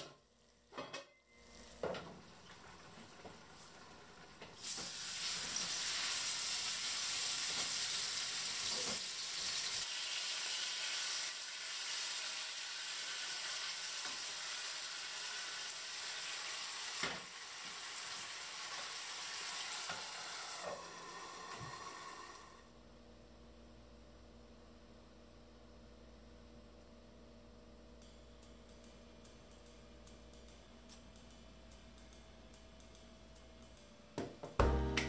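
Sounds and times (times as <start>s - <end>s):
food sizzling in frying pan: 4.6s - 22.6s.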